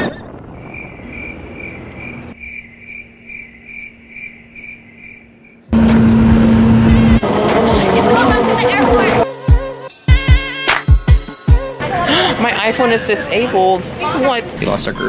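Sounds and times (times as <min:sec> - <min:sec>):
cricket chirping: 0:00.3 - 0:05.7
loud music: 0:05.8 - 0:12.0.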